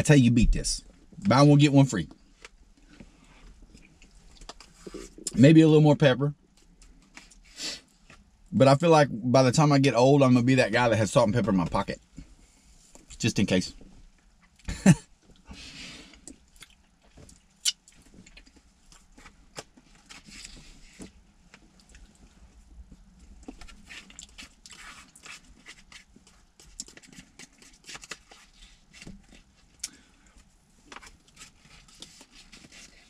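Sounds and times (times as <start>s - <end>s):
man chewing food: 2.4s - 5.4s, 14.1s - 28.5s.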